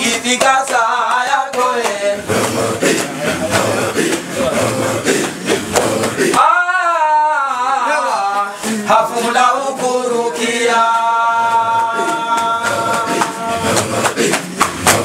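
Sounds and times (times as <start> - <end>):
man chanting unaccompanied: 0.0 - 14.2.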